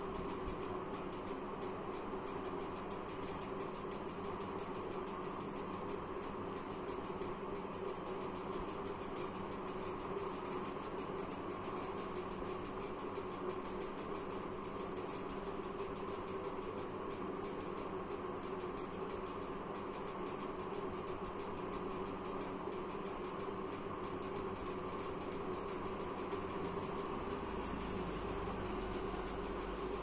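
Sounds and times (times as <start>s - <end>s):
mechanical hum: 0.0s - 30.0s
fast even ticking: 18.4s - 30.0s.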